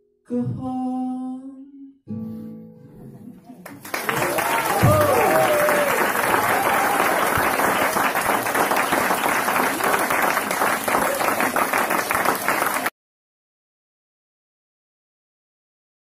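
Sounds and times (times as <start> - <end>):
audience applauding: 3.6 - 12.9.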